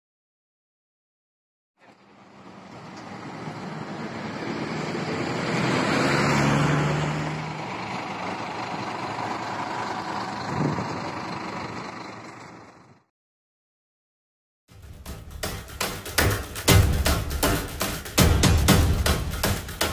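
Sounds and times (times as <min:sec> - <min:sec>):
bus engine: 0:01.8 - 0:13.1
road traffic: 0:01.8 - 0:13.1.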